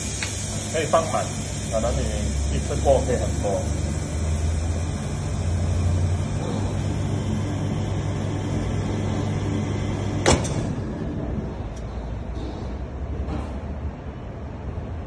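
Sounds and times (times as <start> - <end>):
vacuum pump humming: 0.0 - 11.8.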